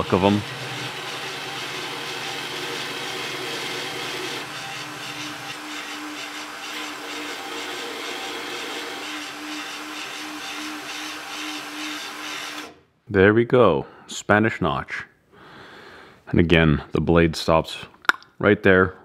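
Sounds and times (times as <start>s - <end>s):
belt grinder grinding knife blade: 0.2s - 12.8s.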